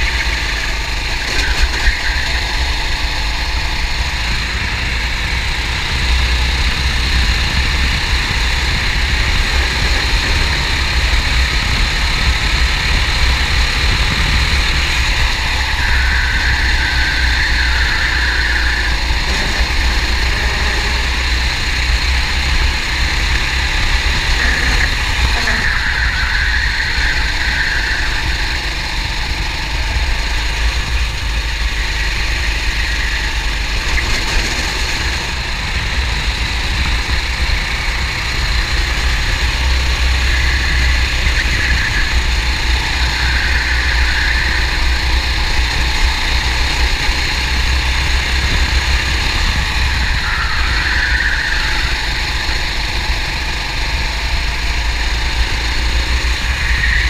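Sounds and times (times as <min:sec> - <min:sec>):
kart engine racing: 0:00.0 - 0:57.0.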